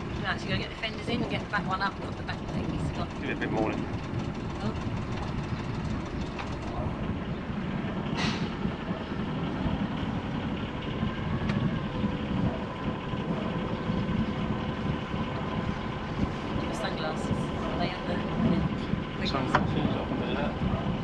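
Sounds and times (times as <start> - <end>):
boat diesel engine rumble: 0.0 - 21.0
brief hiss: 8.2 - 8.6.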